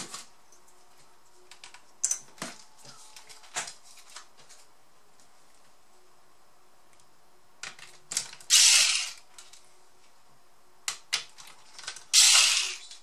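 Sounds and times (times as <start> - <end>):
electric screwdriver running: 8.5 - 9.2, 12.1 - 12.9.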